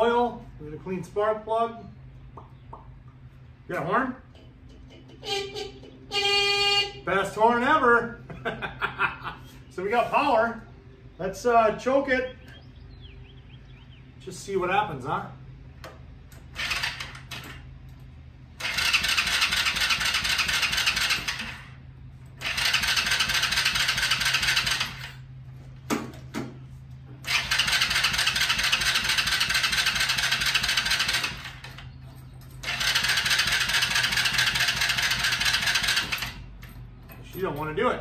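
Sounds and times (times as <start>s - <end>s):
engine cranking with electric starter: 16.3s - 17.7s, 18.6s - 25.3s, 27.2s - 36.6s.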